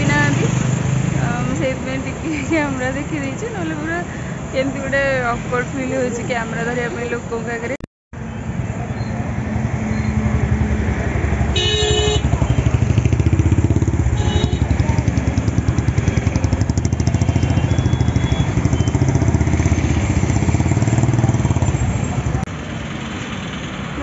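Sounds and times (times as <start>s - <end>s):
motorcycle engine running: 10.3s - 22.4s.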